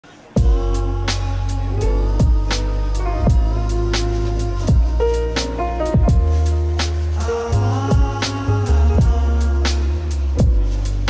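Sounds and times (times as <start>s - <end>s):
music with deep bass and beat: 0.3s - 11.0s.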